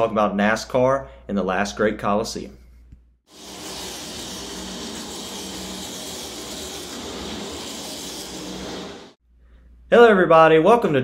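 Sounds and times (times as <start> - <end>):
speedway ambience rushing noise: 3.5 - 9.2.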